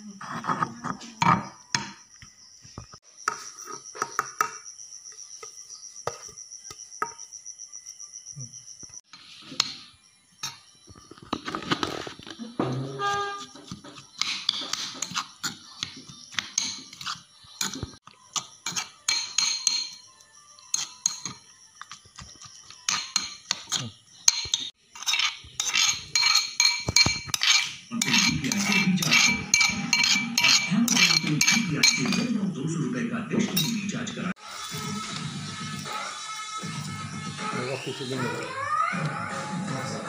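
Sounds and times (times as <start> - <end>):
spoon scraping metal bowl: 11.2 - 20.0, 20.7 - 21.9, 22.9 - 32.4
metal bowl ringing: 28.0 - 32.3.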